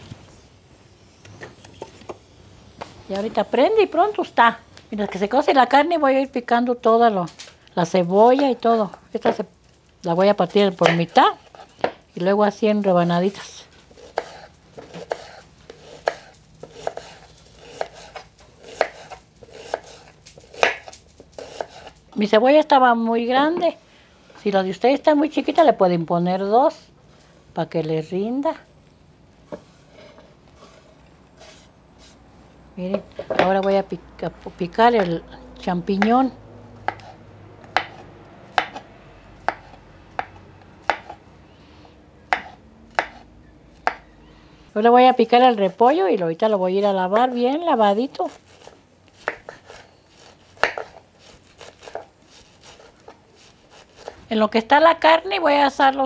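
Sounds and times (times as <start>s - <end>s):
knife slicing onion: 10.2s - 12.0s, 13.0s - 22.6s, 35.9s - 41.2s, 42.3s - 44.1s, 46.6s - 54.5s.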